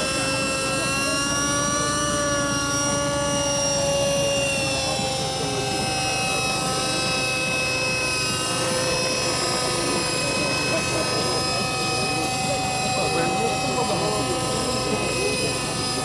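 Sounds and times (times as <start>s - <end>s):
low rotor buzz: 0.0s - 16.0s
model helicopter whine: 0.0s - 16.0s.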